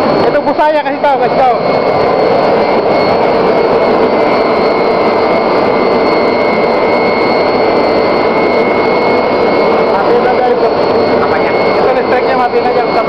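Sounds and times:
faint high whine: 0.0s - 13.0s
furnace roar of air and fire: 0.0s - 13.0s.

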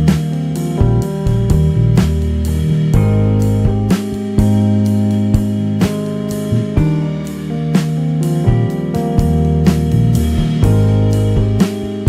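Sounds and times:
instrumental background music: 0.0s - 12.0s.

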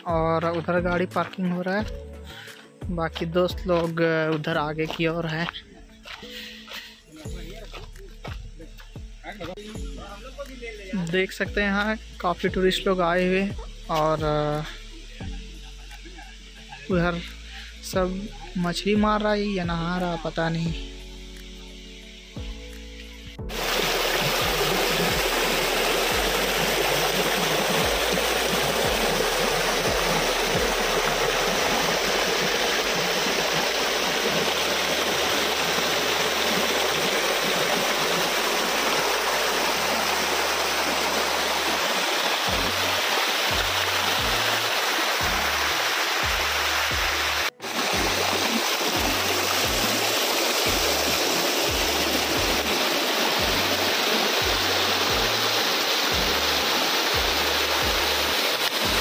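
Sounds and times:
background music with bass beat: 0.0s - 59.0s
water rushing over rocks: 23.5s - 59.0s.

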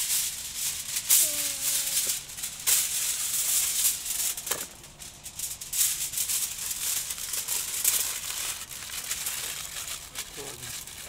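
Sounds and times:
aluminium foil crinkling: 0.0s - 11.0s.

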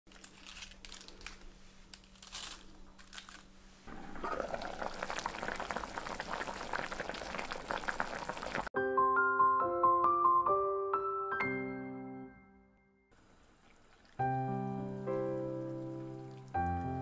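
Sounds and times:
pot bubbling: 3.9s - 8.7s, 13.2s - 17.0s.

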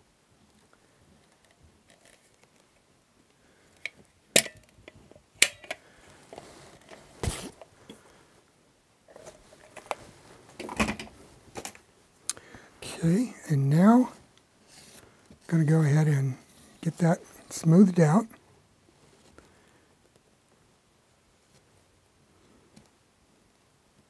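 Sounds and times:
light handling noise: 9.1s - 12.5s.

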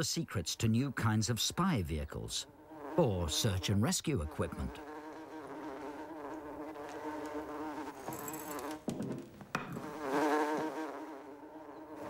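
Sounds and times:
housefly buzzing: 2.4s - 9.0s, 9.6s - 12.0s.

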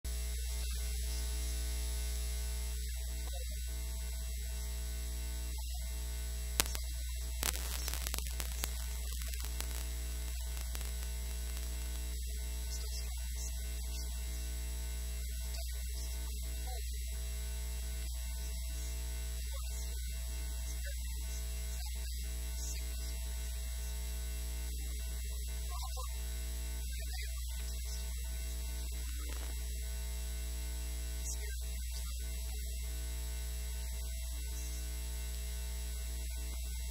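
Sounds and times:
electrical mains hum: 0.1s - 24.9s
static hiss: 4.5s - 16.2s, 27.0s - 32.2s.

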